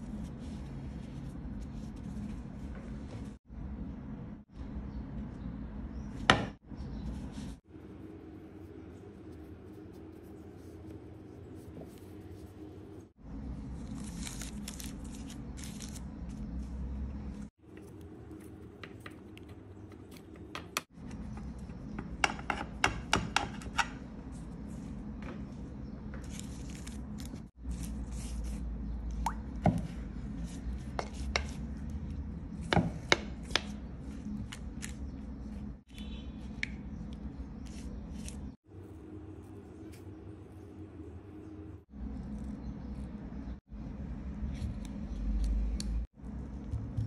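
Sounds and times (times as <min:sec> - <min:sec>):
pastry rustling: 0:07.0 - 0:20.5.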